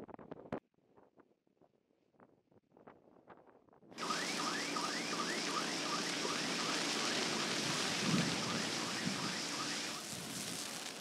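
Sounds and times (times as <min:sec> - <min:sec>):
car alarm whooping: 0:04.0 - 0:10.7
steady rushing hiss: 0:04.0 - 0:11.0.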